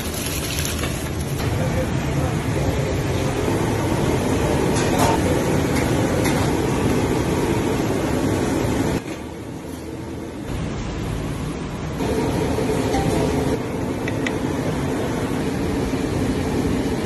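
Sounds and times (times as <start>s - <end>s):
water boiling in a pot: 0.0s - 1.4s
gas burner rumbling: 0.0s - 17.0s.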